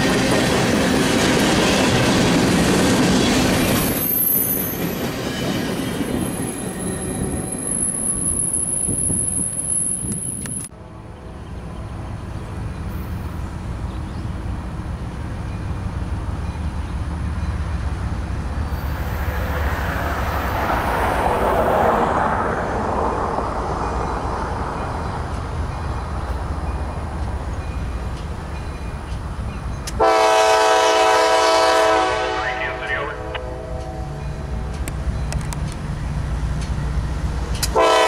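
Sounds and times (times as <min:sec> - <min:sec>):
diesel locomotive engine rumbling: 0:00.0 - 0:38.0
rushing noise: 0:18.0 - 0:25.1.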